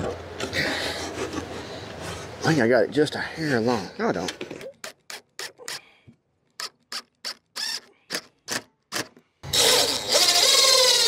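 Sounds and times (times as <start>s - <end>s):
cordless drill driving screw into wood: 6.6s - 11.0s.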